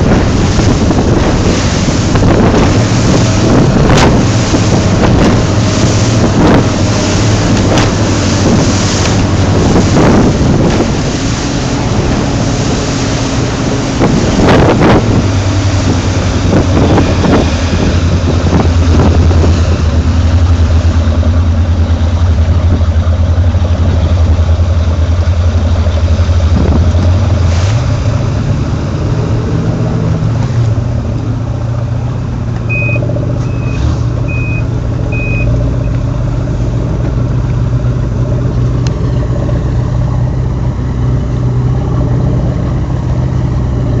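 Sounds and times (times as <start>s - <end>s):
powerboat engine running: 0.0s - 44.0s
rushing water: 0.0s - 44.0s
wind: 0.0s - 44.0s
high electronic beeps: 32.7s - 35.5s.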